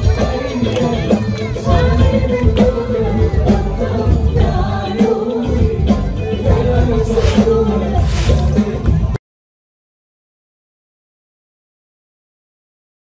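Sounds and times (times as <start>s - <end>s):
band with percussion: 0.0s - 9.2s
person singing: 0.0s - 9.2s.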